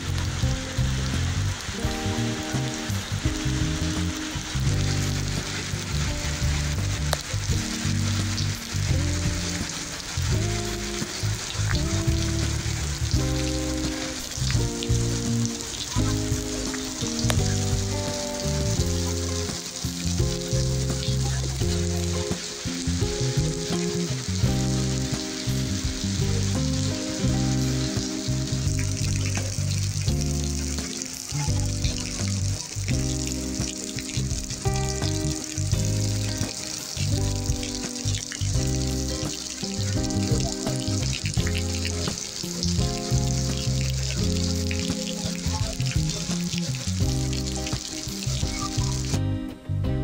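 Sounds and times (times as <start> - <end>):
heavy rain hissing: 0.0 - 49.8
low sustained musical tones: 0.0 - 50.0.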